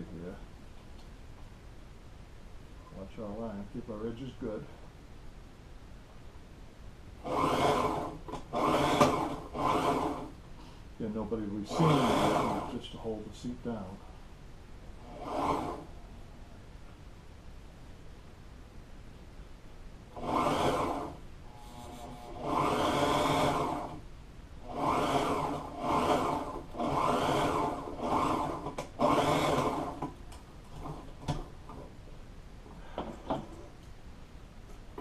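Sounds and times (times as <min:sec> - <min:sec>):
sewing machine stitching: 0:07.2 - 0:10.3, 0:11.6 - 0:12.8, 0:15.0 - 0:15.9, 0:20.1 - 0:21.2, 0:22.0 - 0:24.0, 0:24.6 - 0:31.4.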